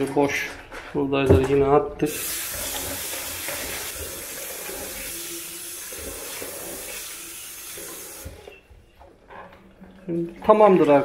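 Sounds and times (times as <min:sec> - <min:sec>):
tap running into basin: 0:02.1 - 0:08.5.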